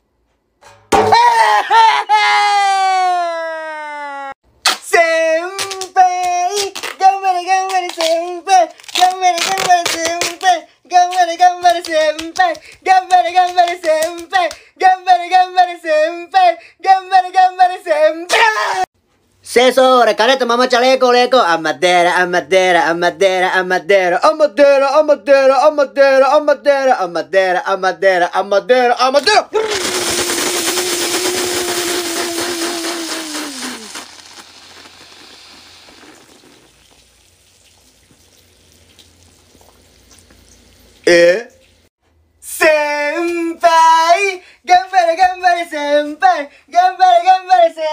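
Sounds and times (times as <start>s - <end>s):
high-pitched singing voice: 4.8s - 18.9s, 42.4s - 47.9s
cola fizzing in a plastic bottle: 29.7s - 41.0s.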